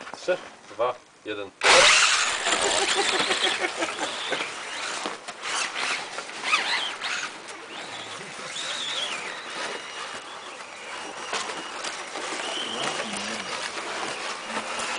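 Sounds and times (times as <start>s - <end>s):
model car motors whining: 1.6s - 14.9s
faint scraping and clicks: 4.3s - 14.9s.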